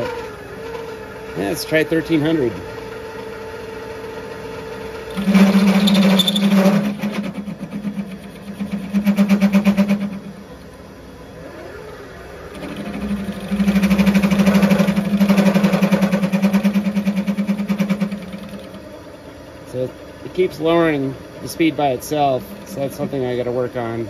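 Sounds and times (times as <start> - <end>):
lathe tool chattering in a cut: 5.1 - 10.3, 12.5 - 18.8, 20.6 - 24.0.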